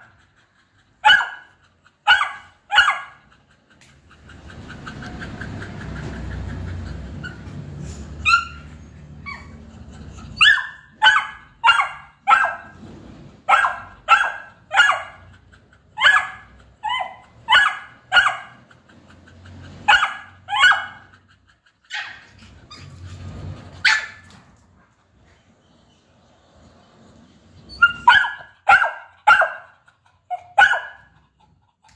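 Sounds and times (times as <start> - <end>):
puppy barking: 1.0 - 3.3, 8.2 - 12.8, 13.5 - 15.4, 16.0 - 18.6, 19.8 - 21.2, 21.9 - 22.3, 23.8 - 24.3, 27.7 - 31.1.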